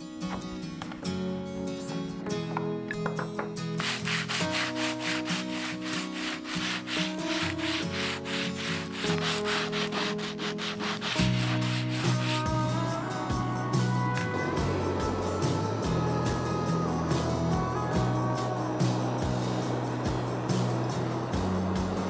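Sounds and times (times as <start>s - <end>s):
background music: 0.0s - 22.0s
sandpaper scratching wooden board: 3.8s - 12.7s.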